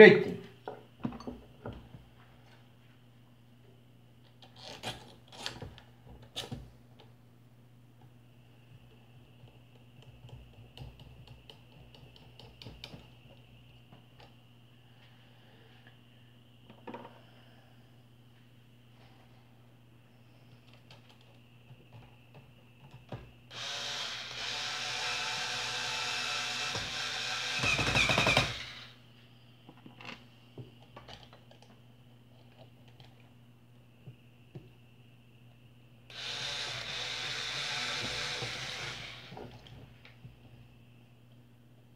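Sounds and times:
electric screwdriver running: 23.5s - 28.9s, 36.1s - 39.4s.

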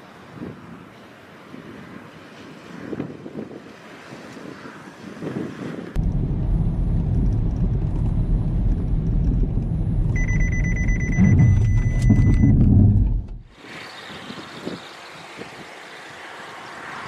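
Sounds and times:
road and engine rumble in car: 5.8s - 13.6s
collision warning beeping: 10.1s - 13.5s.

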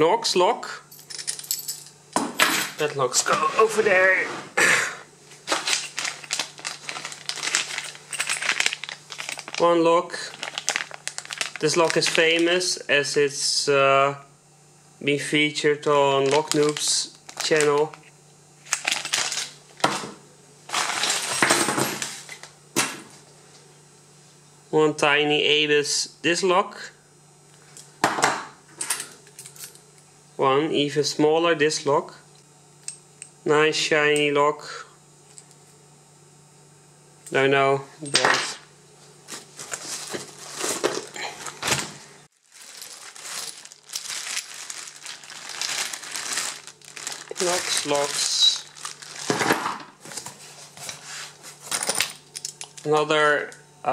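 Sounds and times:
metal locks and keys clinking: 1.0s - 3.0s, 7.5s - 9.6s
rustling packaging: 5.4s - 12.6s, 16.2s - 18.0s, 18.6s - 19.9s, 20.7s - 22.5s, 39.3s - 51.4s.

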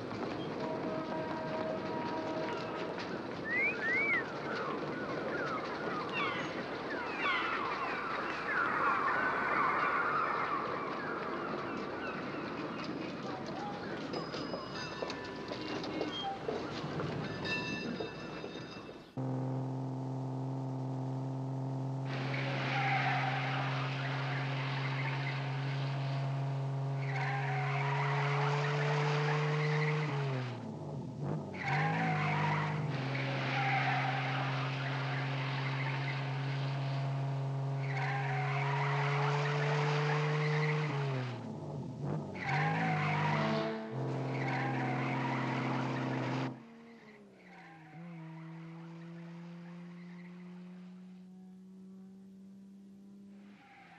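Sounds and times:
car engine running: 19.2s - 47.1s
tyre squeal: 21.2s - 30.2s, 31.5s - 41.0s, 42.4s - 49.0s.

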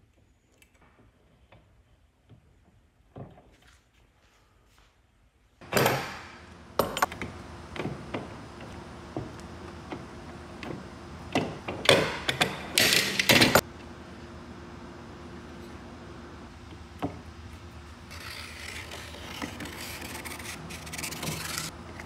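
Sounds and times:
loud scrape: 18.1s - 21.8s.

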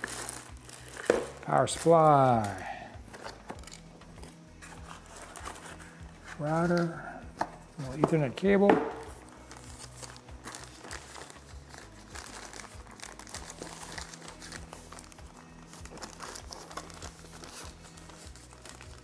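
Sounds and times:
plastic bag crinkling: 9.5s - 19.0s.

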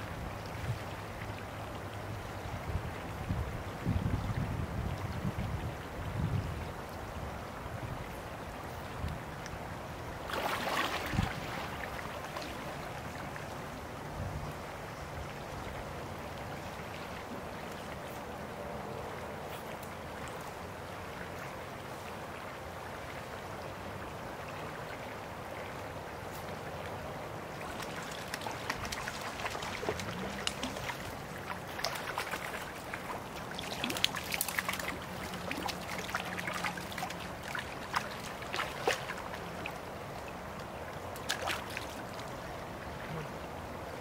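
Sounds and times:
creek water running: 0.0s - 44.0s
fish splashing and thrashing: 27.6s - 39.4s.

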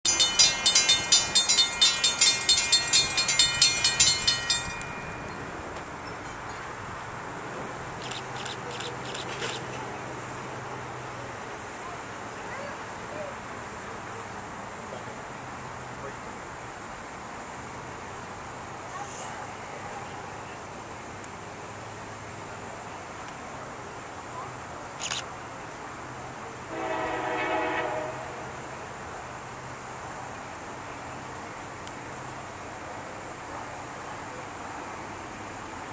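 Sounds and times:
railroad crossing bell ringing: 0.0s - 7.1s
locomotive air horn blast: 26.7s - 28.6s.

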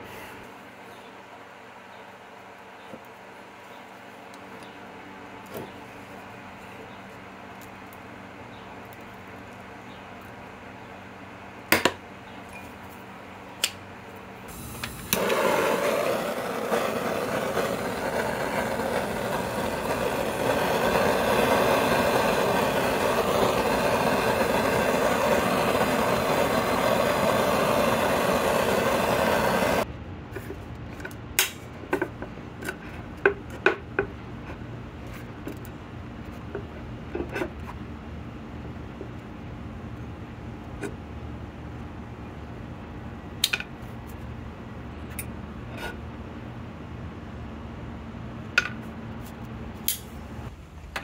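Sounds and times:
gas torch hissing: 14.5s - 29.9s.

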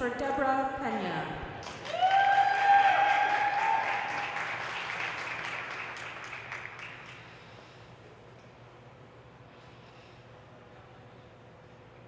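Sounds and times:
audience applauding: 1.6s - 7.2s
high-pitched cheer: 1.8s - 4.6s.

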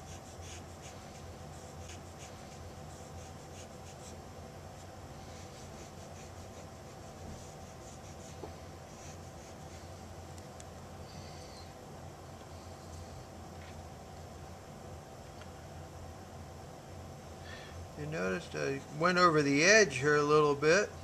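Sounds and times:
scratchy colouring strokes on paper: 0.0s - 4.2s, 5.2s - 9.9s
steady low hum: 0.0s - 21.0s.

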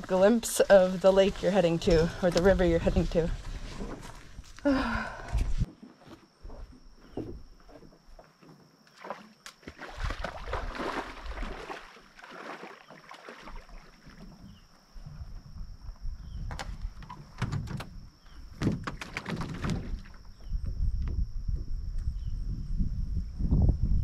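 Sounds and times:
footsteps splashing through water: 8.9s - 14.2s.

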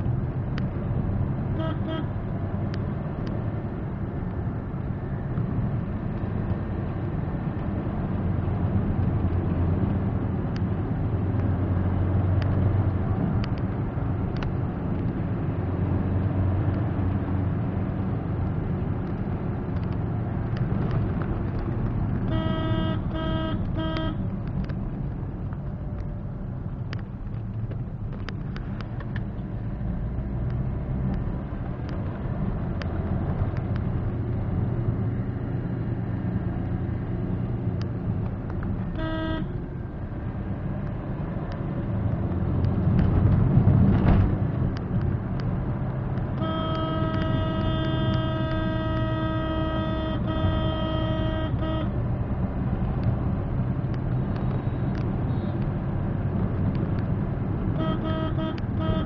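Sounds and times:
car engine and tyre rumble: 0.0s - 59.0s
car horn toot: 1.5s - 2.2s, 22.2s - 24.2s, 38.9s - 39.6s, 46.4s - 52.0s, 54.6s - 55.6s, 57.8s - 59.0s
long horn blast: 1.5s - 2.2s, 22.3s - 24.2s, 38.9s - 39.6s, 46.3s - 52.0s, 57.7s - 59.0s.

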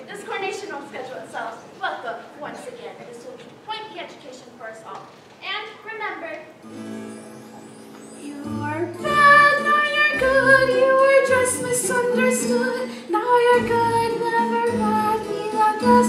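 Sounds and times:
instrumental accompaniment: 6.5s - 16.0s
woman singing: 8.2s - 16.0s.

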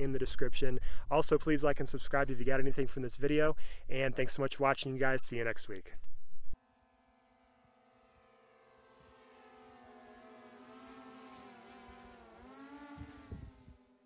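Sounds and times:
drone propellers humming: 6.6s - 14.0s.

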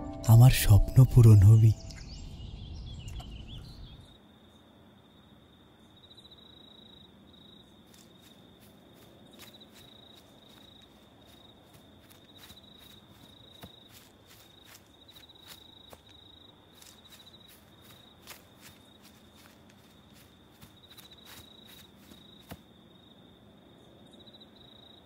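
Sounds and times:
crickets chirping: 1.6s - 25.0s
footsteps on dirt path: 7.5s - 22.8s.

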